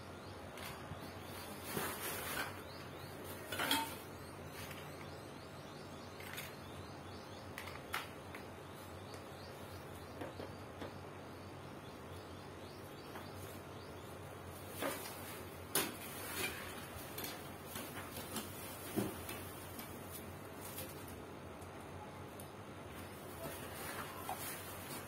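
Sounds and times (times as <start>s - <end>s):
low background hum: 0.0s - 25.0s.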